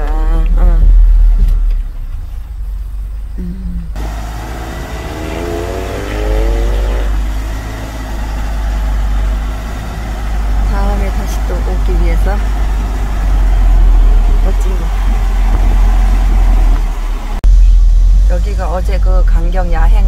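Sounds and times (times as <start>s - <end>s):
van engine and road rumble: 0.0s - 20.0s
road hiss: 3.9s - 19.0s.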